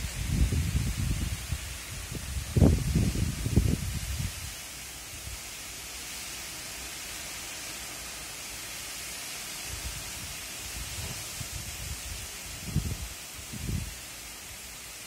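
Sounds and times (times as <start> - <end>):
wind buffeting microphone: 0.0 - 4.5, 9.7 - 14.0
rain hissing: 0.0 - 15.0.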